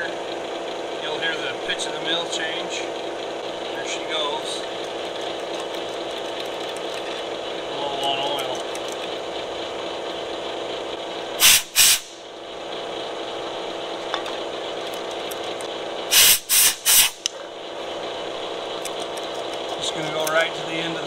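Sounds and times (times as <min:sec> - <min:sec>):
cutting oil spray hissing: 0:11.4 - 0:12.3, 0:16.0 - 0:17.3.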